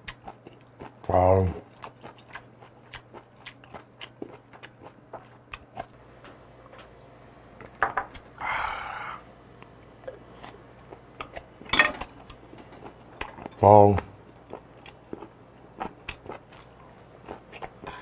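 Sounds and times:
person chewing food: 0.0 - 6.0, 9.6 - 13.6, 14.2 - 18.0
breathy exhale: 8.4 - 9.3.

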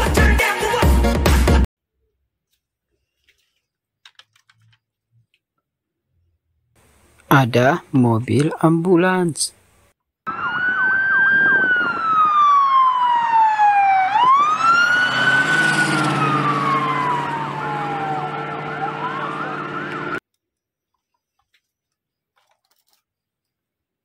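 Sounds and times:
ambulance siren wailing: 10.3 - 20.2.

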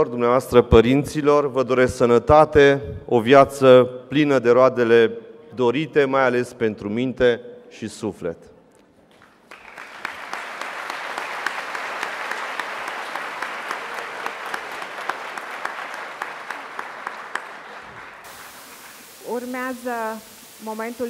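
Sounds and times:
audience applauding: 9.1 - 19.4.

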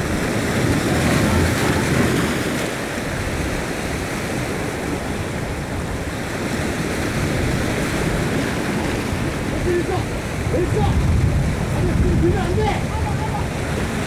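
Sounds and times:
sea waves breaking on rocks: 0.0 - 14.0.

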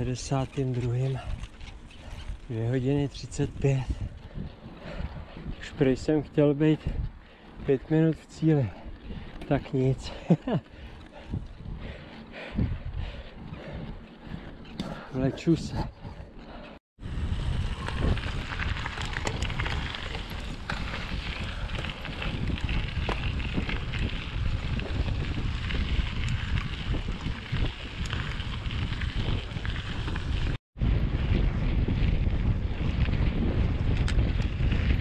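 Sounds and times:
tyres rolling on gravel: 0.0 - 15.7, 17.2 - 30.6
bike clicks and rattles: 0.0 - 35.0
wind buffeting microphone: 0.0 - 35.0.

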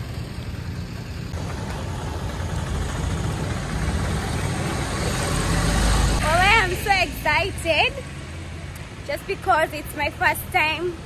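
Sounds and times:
auto-rickshaw engines on wet road: 0.0 - 11.0.

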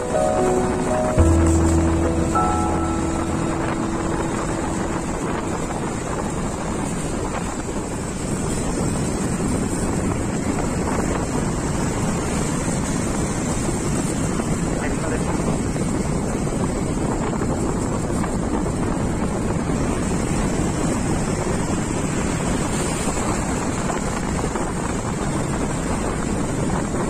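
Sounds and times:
background music: 0.0 - 7.2
vehicle road and engine noise: 4.6 - 27.0.

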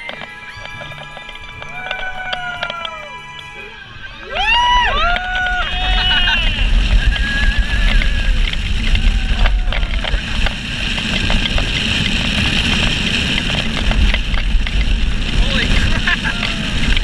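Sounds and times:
high wavering squeal: 0.0 - 9.3
roller coaster rumbling on track: 0.0 - 17.0
wind buffeting microphone: 0.0 - 17.0.

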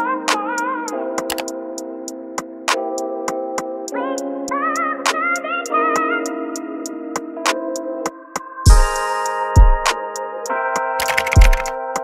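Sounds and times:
light ticking beat: 8.7 - 10.0, 11.0 - 11.8.

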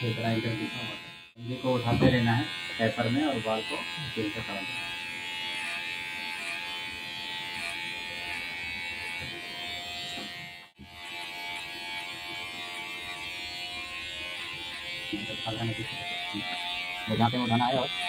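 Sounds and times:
electric hair clipper buzzing: 0.0 - 18.0.

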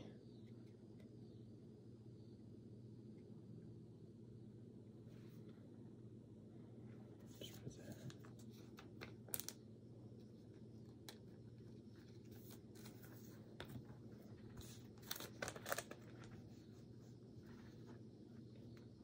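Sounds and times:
low room hum: 0.0 - 19.0
plastic sleeves crinkling: 12.1 - 16.7.

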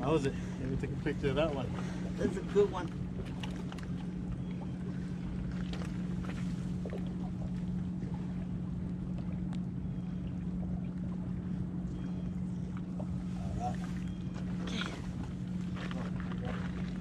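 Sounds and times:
low motor drone: 0.0 - 17.0.

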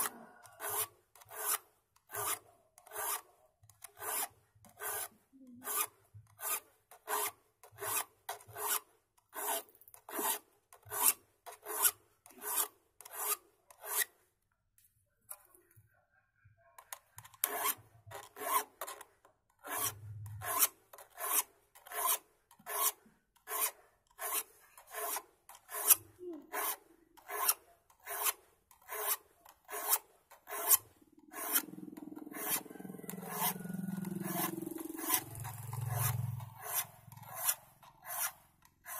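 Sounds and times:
hand file rasping on saw teeth: 0.0 - 14.2, 16.9 - 38.9.

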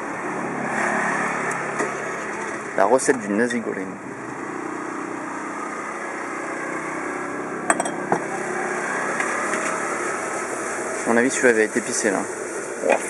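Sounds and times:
mechanical hum with hiss: 4.0 - 13.0.

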